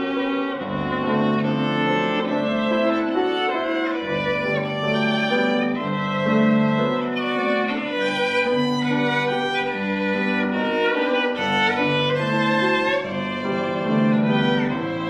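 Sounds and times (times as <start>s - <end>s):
slow violin melody: 0.0s - 15.0s.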